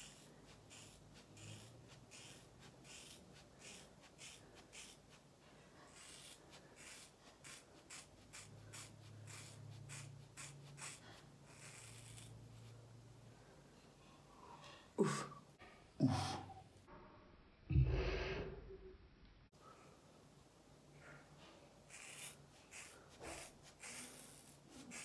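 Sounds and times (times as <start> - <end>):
scissors cutting hair: 0.0 - 5.2, 5.9 - 12.4, 21.9 - 25.0.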